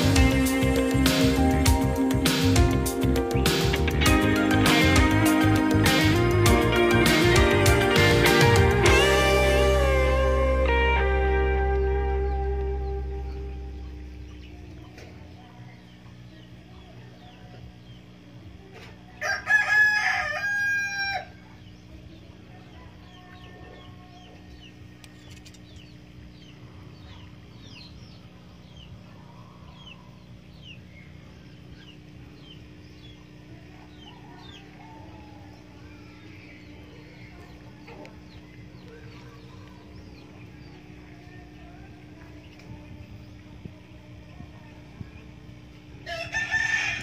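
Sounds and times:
steady low hum: 0.0s - 47.0s
rooster crowing: 19.2s - 21.5s, 33.8s - 36.0s, 46.0s - 47.0s.

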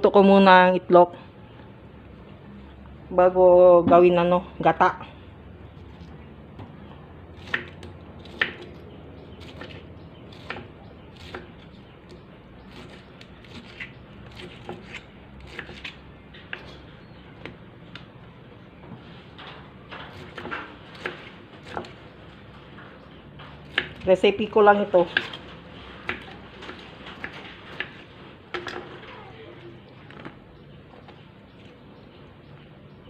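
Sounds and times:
knife cutting pineapple: 7.3s - 18.1s, 20.0s - 22.0s, 23.6s - 29.3s.

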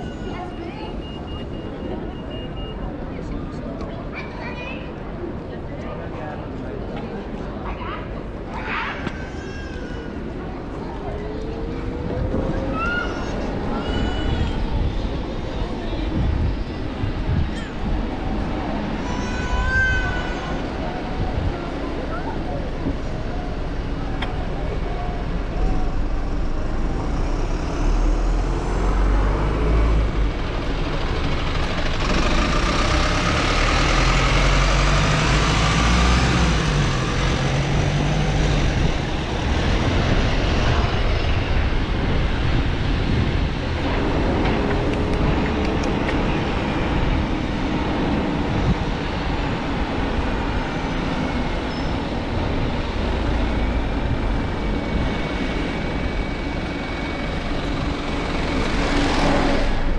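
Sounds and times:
engine hum: 20.2s - 59.9s
motor vehicles passing: 21.4s - 59.9s
steady low rumble: 38.5s - 59.9s.

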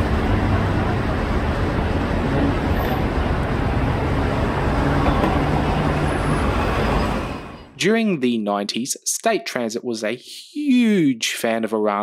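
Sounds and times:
bus engine hum: 0.0s - 7.8s
road and traffic noise: 0.0s - 7.8s.

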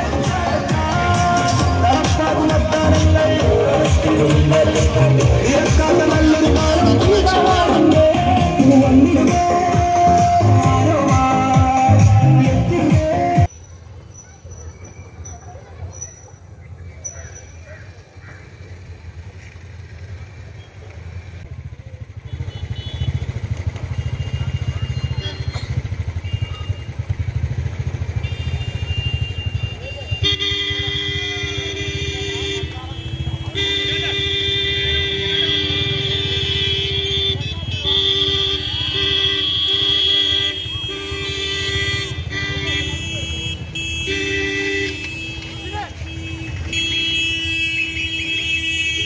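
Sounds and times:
motorcycle engines rumbling: 0.0s - 49.0s
vehicle horns honking: 22.2s - 49.0s.

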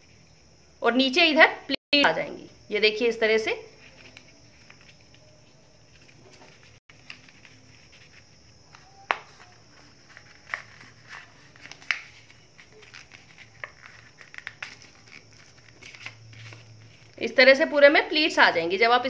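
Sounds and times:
paper rustling and crinkling: 3.7s - 17.2s
sharp paper crackles: 3.8s - 17.2s.

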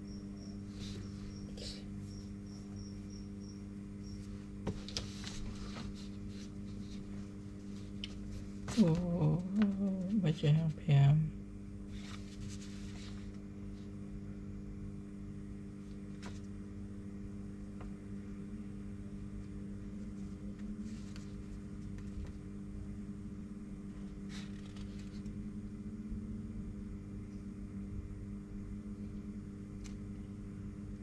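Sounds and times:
low electrical hum: 0.0s - 31.0s
paper rustling: 4.6s - 10.2s, 11.9s - 13.9s, 15.8s - 16.5s, 20.0s - 22.4s, 24.1s - 25.3s.

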